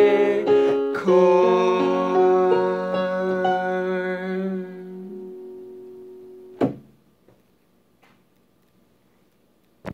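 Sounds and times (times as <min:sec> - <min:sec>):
piano keyboard chord: 0:00.0 - 0:06.6
thump: 0:06.6 - 0:06.9.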